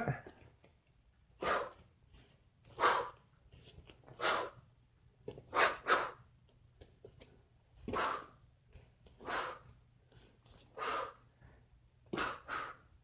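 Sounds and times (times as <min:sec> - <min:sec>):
sharp forceful exhalations: 0:02.7 - 0:03.2.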